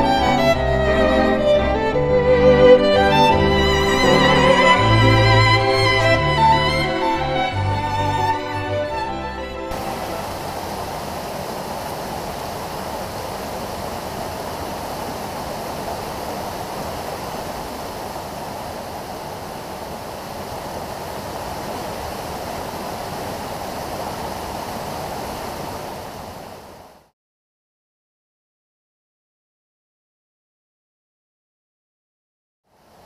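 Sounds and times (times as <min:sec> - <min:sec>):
stream running over rocks: 0:09.7 - 0:27.1.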